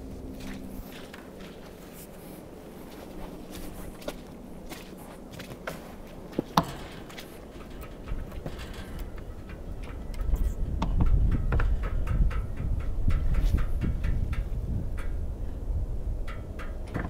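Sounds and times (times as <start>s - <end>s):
low rumble: 0.0s - 5.2s, 6.2s - 17.0s
knocks and clicks of wood and metal: 5.3s - 15.2s, 16.2s - 17.0s.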